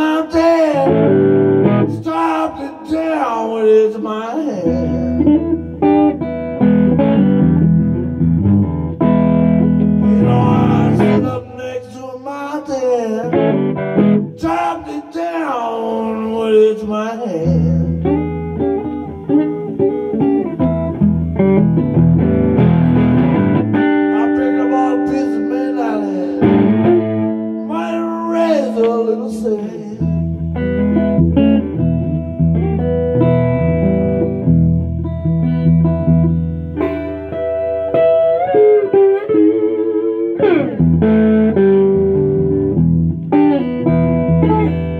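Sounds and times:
man singing: 0:00.0 - 0:05.6, 0:10.0 - 0:19.0, 0:24.0 - 0:26.9, 0:27.6 - 0:30.3
electric guitar playing: 0:00.0 - 0:44.9.

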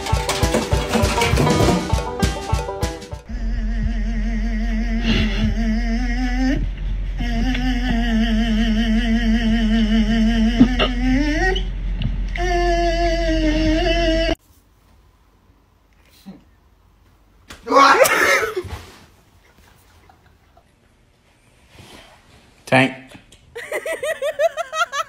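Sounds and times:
beat-driven music: 0:00.0 - 0:04.2
low hum: 0:03.2 - 0:14.4.

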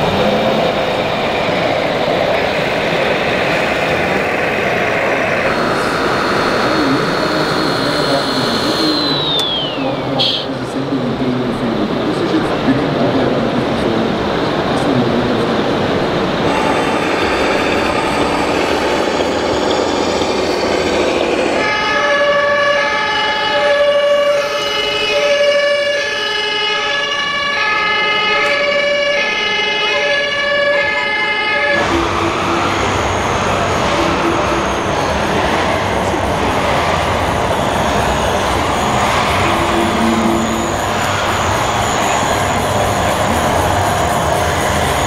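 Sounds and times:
model truck engine rumbling: 0:00.0 - 0:25.4, 0:31.7 - 0:45.0
two-tone electronic siren: 0:03.0 - 0:10.5, 0:16.5 - 0:45.0.

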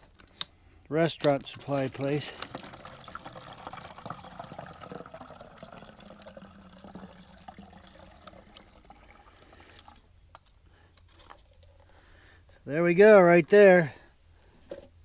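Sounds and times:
liquid trickling into bottle: 0:01.5 - 0:10.1.

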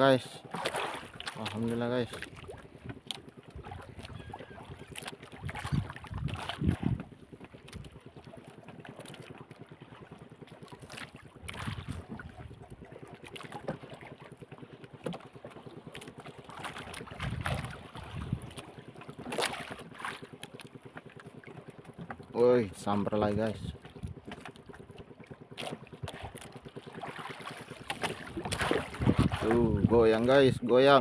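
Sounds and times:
waves lapping against boat: 0:00.0 - 0:31.0
wind on microphone: 0:03.6 - 0:07.1, 0:11.4 - 0:12.7, 0:17.1 - 0:18.6, 0:28.3 - 0:30.2.

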